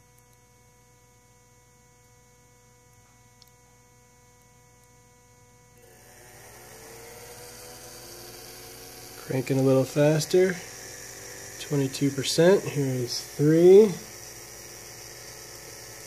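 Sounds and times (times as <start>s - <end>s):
electric fan motor whine: 0.0s - 16.0s
faint electrical hum: 0.0s - 16.0s
fan air noise: 5.8s - 16.0s.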